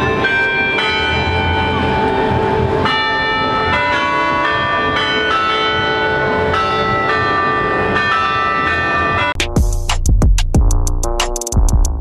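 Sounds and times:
tower bells ringing a tune: 0.0s - 9.4s.

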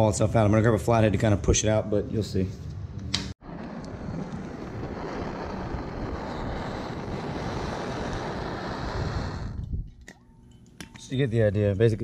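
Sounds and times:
torch flame hissing: 3.4s - 9.8s.

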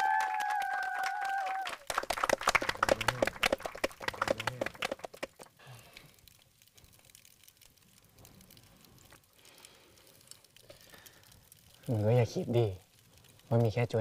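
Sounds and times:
small audience clapping: 0.0s - 5.6s.

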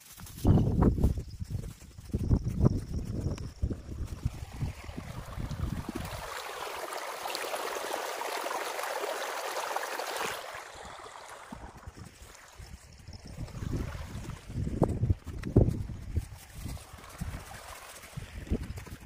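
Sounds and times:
wind rumble on microphone: 0.0s - 6.5s, 10.7s - 19.0s
stream water bubbling over stones: 4.0s - 14.6s.

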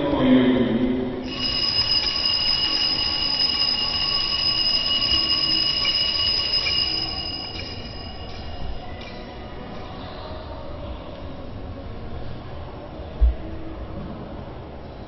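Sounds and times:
altar bells jingling: 1.2s - 9.4s.

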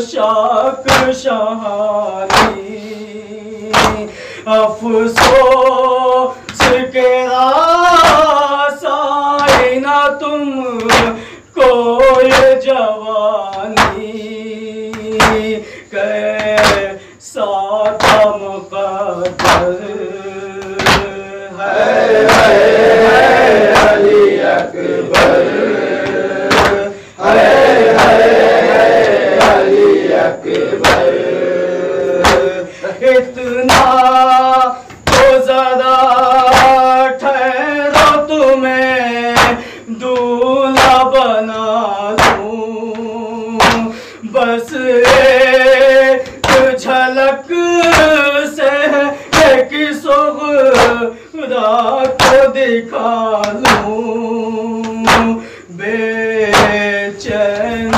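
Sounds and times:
man chanting a lament: 0.0s - 57.9s
men singing in unison: 0.0s - 57.9s
chest-beating strokes: 21.7s - 33.0s.

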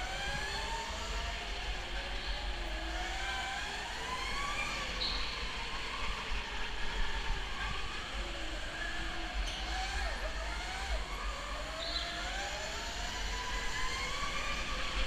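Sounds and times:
go-kart motor whining: 0.0s - 15.0s.

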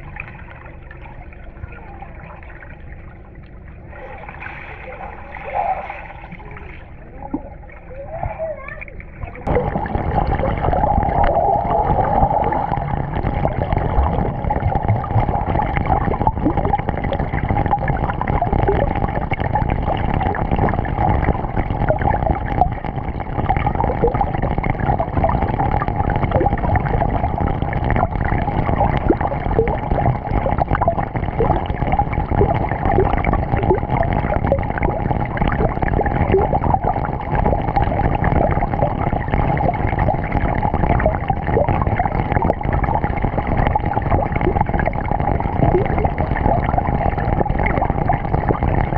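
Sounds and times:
bubbly gurgles: 0.0s - 48.9s
mid-pitched hum: 0.0s - 48.9s
muffled underwater water rush: 0.0s - 48.9s.

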